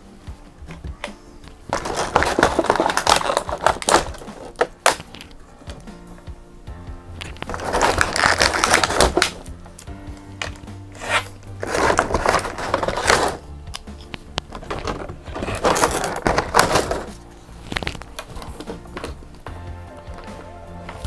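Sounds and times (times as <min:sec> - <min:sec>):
soft background music: 0:00.0 - 0:21.0
plastic packaging crinkling: 0:01.7 - 0:05.4, 0:07.2 - 0:09.5, 0:10.4 - 0:19.4.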